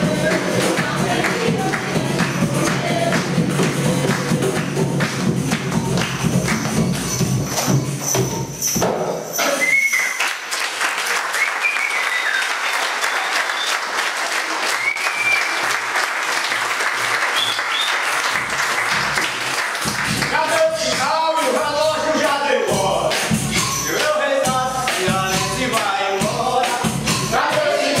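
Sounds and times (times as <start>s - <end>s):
audience clapping: 0.0s - 7.6s, 9.4s - 22.4s
recorded music: 0.0s - 9.8s, 17.0s - 28.0s
short high whistles: 9.3s - 10.4s, 11.3s - 13.9s, 14.7s - 15.6s, 17.3s - 18.2s.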